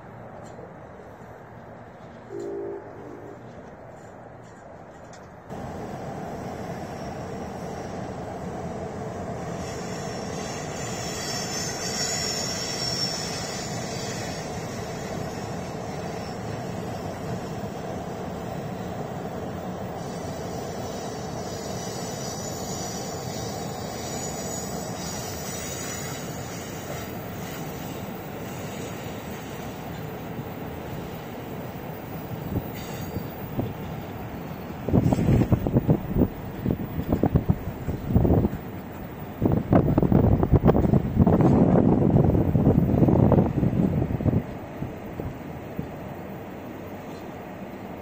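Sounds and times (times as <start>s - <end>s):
train wheels rumbling on rails: 3.3s - 48.0s
high wheel squeals: 9.5s - 17.1s, 20.0s - 29.1s, 32.7s - 33.5s.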